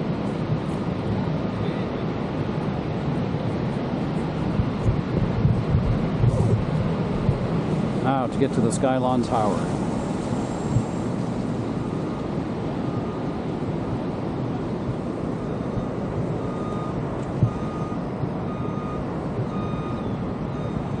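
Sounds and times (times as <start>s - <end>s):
steady rushing roar: 0.0s - 21.0s
electronic warning beeps: 10.5s - 13.8s, 14.6s - 21.0s.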